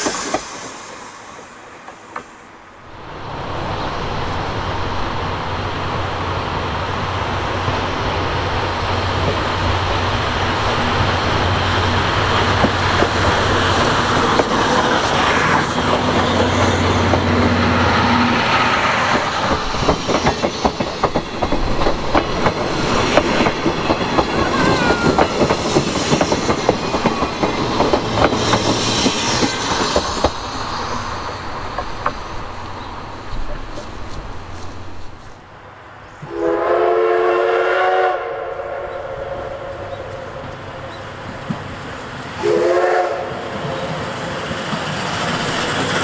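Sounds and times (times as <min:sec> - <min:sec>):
steam locomotive approaching: 0:00.0 - 0:46.0
wheels clattering over rail joints: 0:18.9 - 0:35.4.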